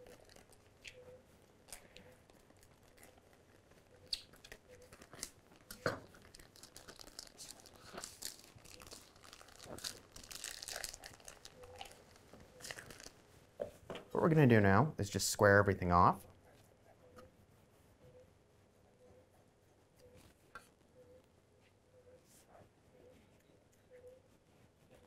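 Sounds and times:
plastic bag crinkling and tearing: 0.0s - 0.7s, 1.7s - 13.2s.

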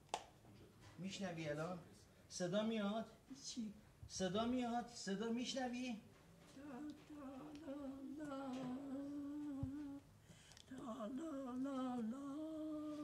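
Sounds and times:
elderly woman humming: 6.5s - 13.0s.

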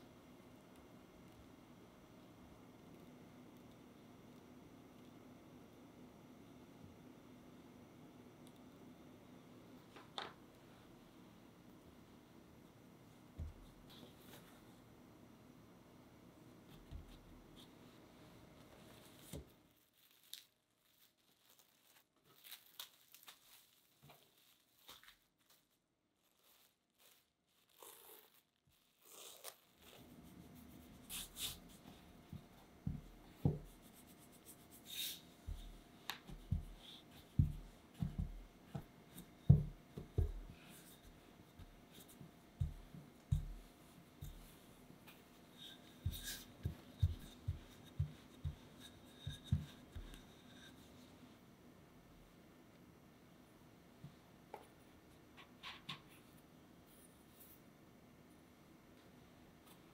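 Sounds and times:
hands pressing and folding dough: 13.3s - 14.7s, 16.6s - 51.4s
plastic wrap crinkling: 19.0s - 30.0s
rolling pin working dough: 30.0s - 51.1s.

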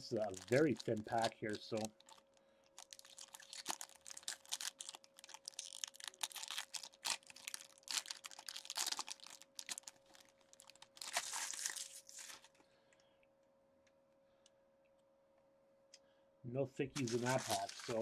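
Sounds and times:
foil wrapper tearing and crinkling: 0.0s - 12.6s, 17.0s - 18.0s.

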